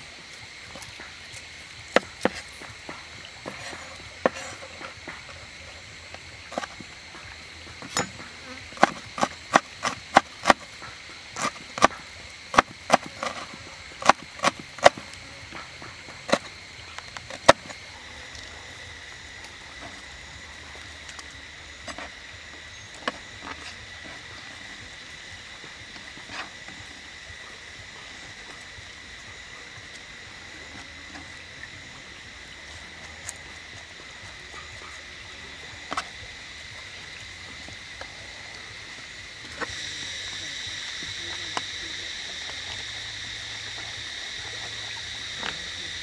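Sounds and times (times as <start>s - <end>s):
high-pitched insect drone: 0.0s - 46.0s
cleaver chopping on wooden board: 7.8s - 10.7s, 11.4s - 16.5s.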